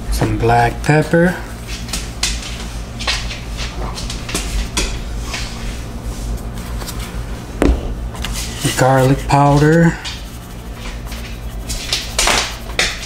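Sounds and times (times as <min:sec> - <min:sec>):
steady low hum: 0:00.0 - 0:13.0
pepper shaker shaking: 0:08.7 - 0:13.0.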